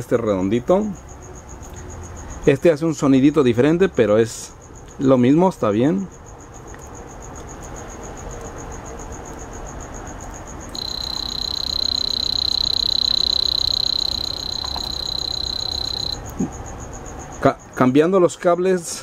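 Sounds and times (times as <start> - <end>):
steady high buzzer beep: 10.8 - 16.2.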